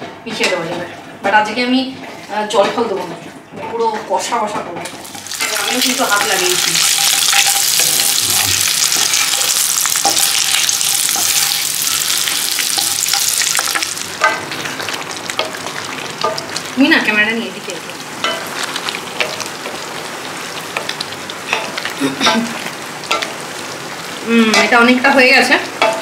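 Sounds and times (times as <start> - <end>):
meat sizzling in a pan: 5.0 - 26.0
spoon scraping a pan: 5.1 - 8.2, 8.8 - 16.7, 18.2 - 20.1.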